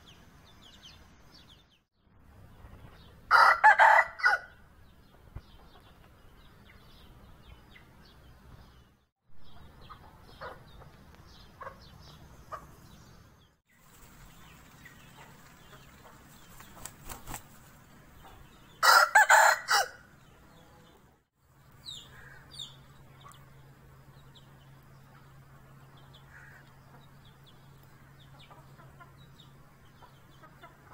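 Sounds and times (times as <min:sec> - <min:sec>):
rooster crowing: 0:03.3 - 0:04.6, 0:18.8 - 0:20.1
chickens clucking: 0:05.0 - 0:07.9, 0:09.4 - 0:13.1, 0:14.2 - 0:19.6, 0:23.0 - 0:23.6, 0:24.5 - 0:30.9
wings flapping: 0:13.8 - 0:17.8.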